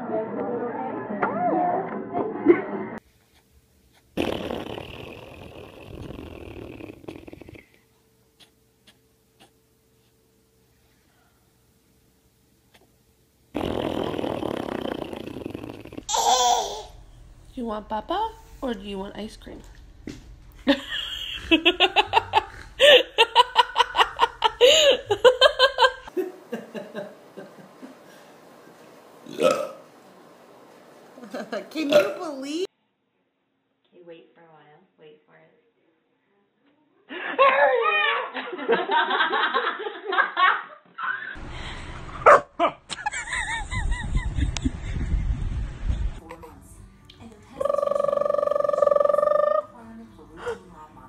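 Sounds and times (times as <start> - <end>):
person laughing hard: 20.7 - 27.0, 42.6 - 45.1
low steady rumble: 43.1 - 47.6.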